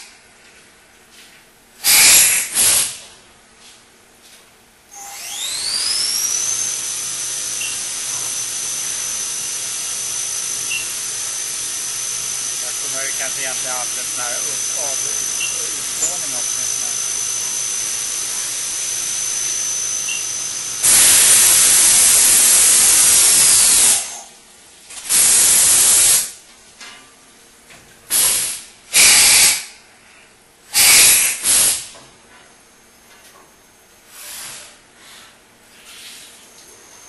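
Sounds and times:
loud hissing blasts: 1.8s - 3.0s, 12.5s - 17.5s, 20.8s - 24.0s, 25.0s - 26.3s, 30.8s - 31.9s
thin high whine: 4.9s - 24.0s.

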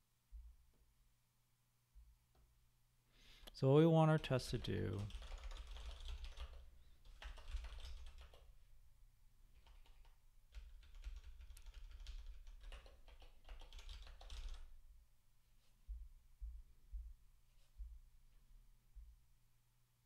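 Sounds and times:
faint keyboard typing: 4.2s - 8.6s, 9.5s - 14.8s.

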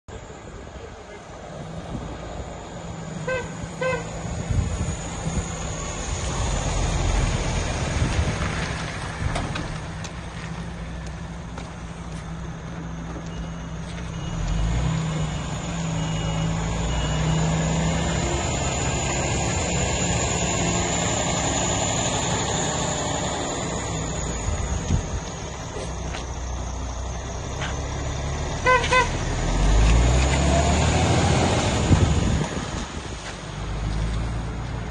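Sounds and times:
truck diesel engine: 0.1s - 34.9s.

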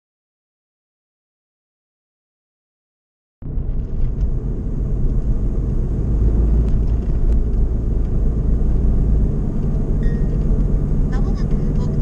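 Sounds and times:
engine and road noise in cabin: 3.4s - 12.0s.

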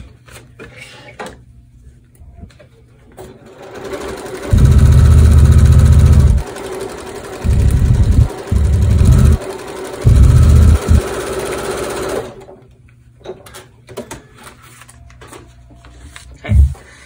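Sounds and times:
sewing machine stitching: 3.2s - 12.5s.

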